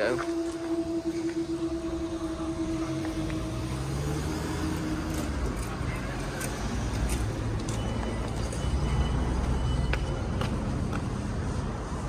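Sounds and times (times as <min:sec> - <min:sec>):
faint high steady tone: 0:00.0 - 0:06.3
cars rumbling past: 0:00.2 - 0:12.0.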